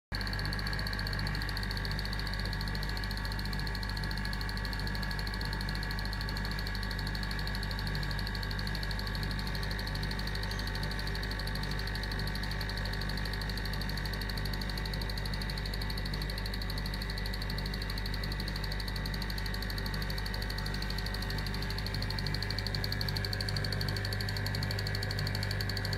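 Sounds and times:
electrical hum: 0.2s - 25.9s.

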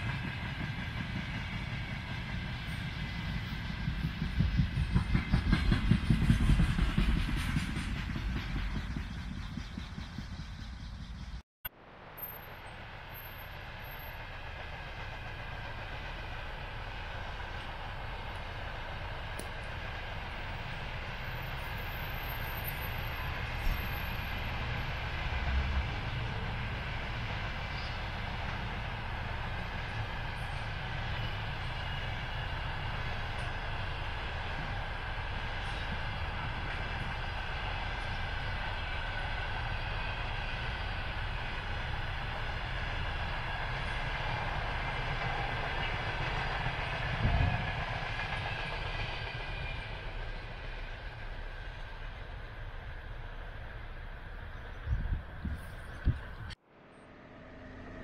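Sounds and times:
train knocks: 0.0s - 11.2s
freight train rolling past: 0.0s - 58.0s.

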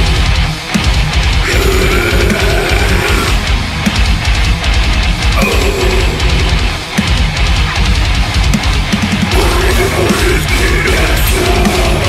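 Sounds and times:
heavy metal song: 0.0s - 12.0s.

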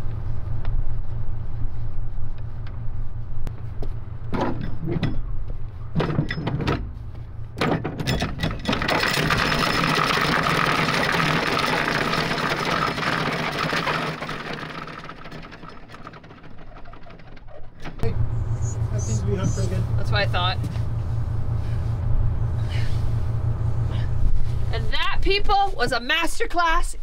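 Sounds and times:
metal clanks: 4.2s - 19.7s
anchor chain rattling out: 7.6s - 18.1s.

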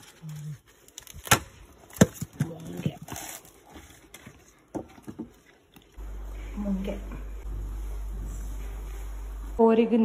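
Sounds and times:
coconut husk snapping: 0.9s - 2.5s.

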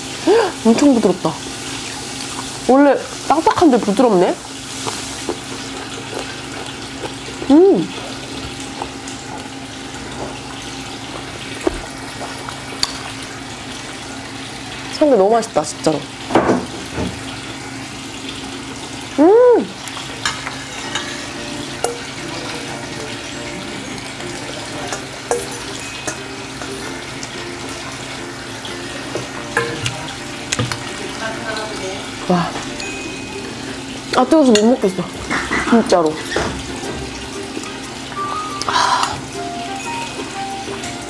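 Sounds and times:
background hiss and hum: 0.0s - 34.2s
utensils clicking on metal bowls: 19.8s - 31.9s, 32.6s - 41.0s
metal spoon clinking in bowl: 24.9s - 26.7s.

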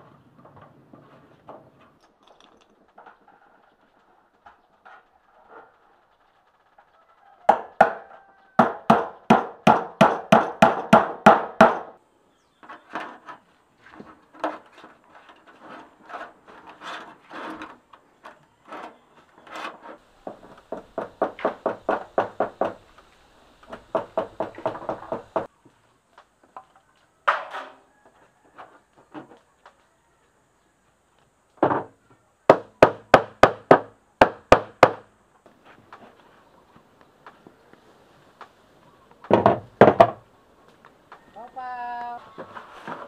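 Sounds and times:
hammer striking nails into metal sheet: 8.6s - 12.0s, 32.5s - 35.0s.

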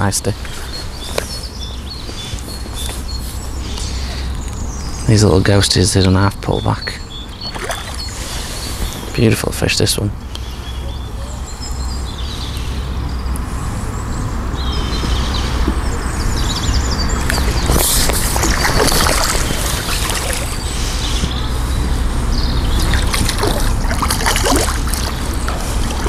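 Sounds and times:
birds chirping: 0.0s - 26.0s
fish splashing at water surface: 7.4s - 8.4s, 17.3s - 21.0s, 22.8s - 26.0s.

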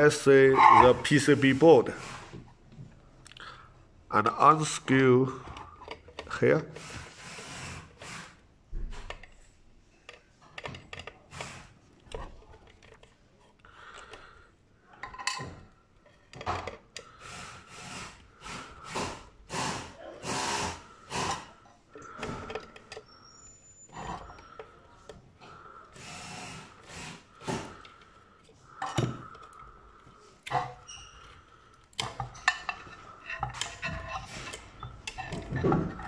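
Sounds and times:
screwdriver scraping and grinding: 0.2s - 2.5s, 4.3s - 8.4s, 10.4s - 14.3s, 15.3s - 36.0s
rubbing of board and wires: 30.5s - 36.0s.

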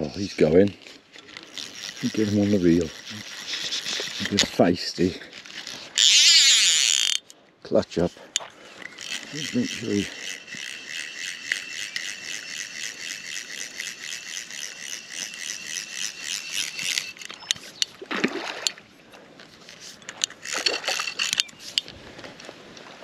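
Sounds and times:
fishing reel ratchet clicking: 0.1s - 18.0s, 19.6s - 21.9s
fish splashing: 18.0s - 18.8s.

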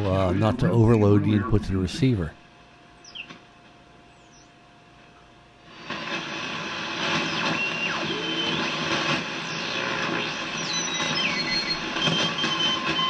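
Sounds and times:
garbled sideband stations: 0.0s - 2.4s, 5.7s - 13.0s
radio band noise and static: 0.0s - 13.0s
sliding beat whistles: 7.1s - 13.0s.

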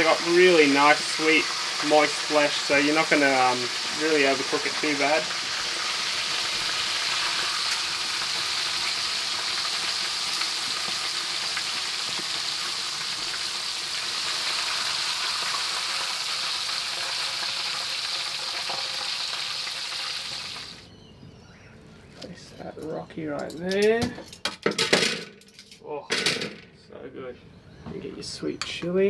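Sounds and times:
fish deep-frying sizzle: 0.0s - 20.9s.

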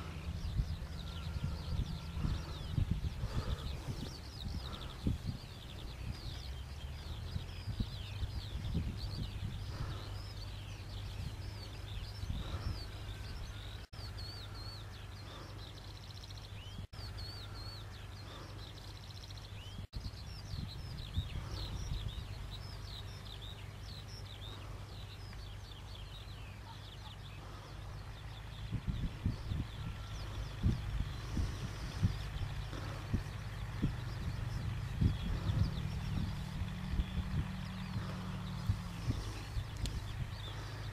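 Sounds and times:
small birds chirping: 0.0s - 40.9s
tractor engine humming: 0.0s - 40.9s.

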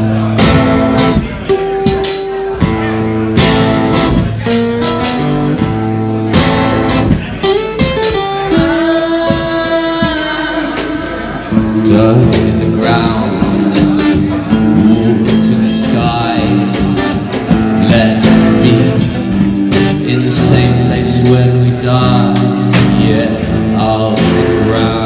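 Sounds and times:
acoustic guitar: 0.0s - 25.0s
person singing: 7.4s - 25.0s.

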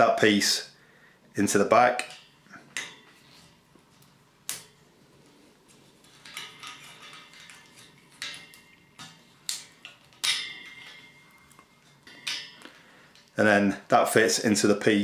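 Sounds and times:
metal parts clicking and clinking: 6.0s - 13.4s.

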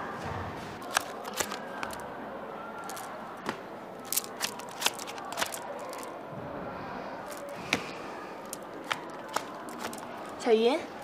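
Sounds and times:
playing cards snapping: 0.8s - 2.0s, 2.8s - 3.1s, 4.0s - 6.1s, 7.3s - 7.6s, 8.4s - 10.2s.

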